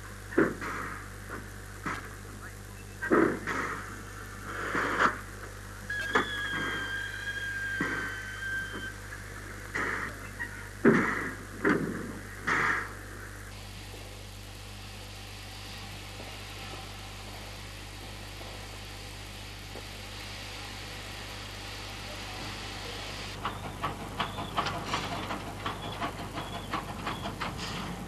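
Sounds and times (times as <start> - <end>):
steam hissing: 3.4 - 10.2, 19.6 - 28.0
steam locomotive chuffing: 21.9 - 28.0.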